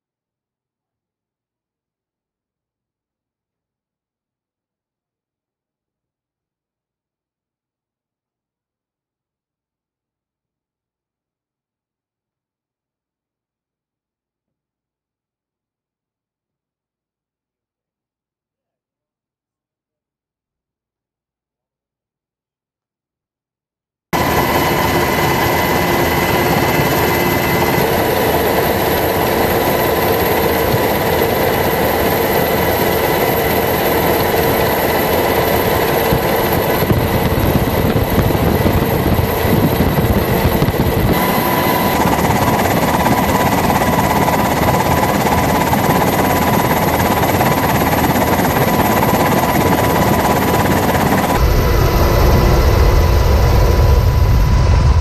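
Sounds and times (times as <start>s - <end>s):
aircraft engine roar: 24.2s - 55.0s.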